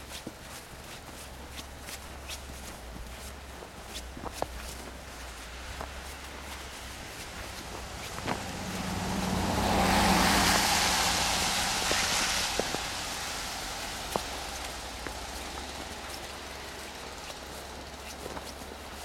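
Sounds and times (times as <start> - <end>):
vehicle passing by: 4.6 - 19.0.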